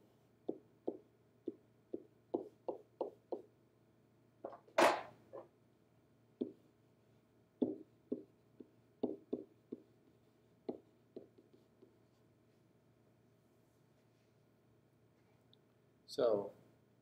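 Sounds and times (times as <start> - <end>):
pen tapping on whiteboard: 0.4 - 3.5, 6.4 - 6.6, 7.6 - 12.0.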